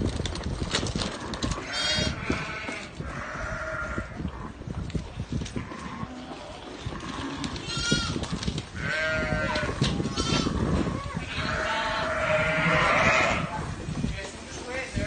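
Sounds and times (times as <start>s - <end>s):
sheep bleating: 1.6s - 4.1s, 8.8s - 13.6s.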